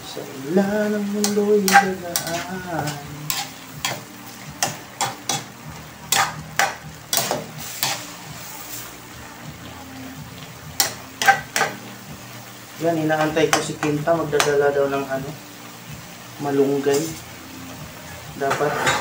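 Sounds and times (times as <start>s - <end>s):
pan sizzling: 0.0s - 19.0s
metal spatula scraping wok: 1.2s - 5.5s, 6.1s - 8.9s, 18.4s - 19.0s.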